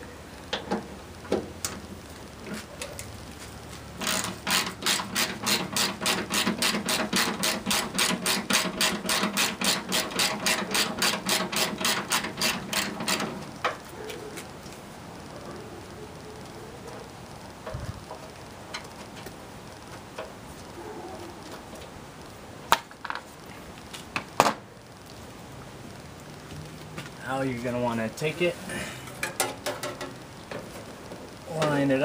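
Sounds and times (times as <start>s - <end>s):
hand ratchet clicking: 4.0s - 13.3s.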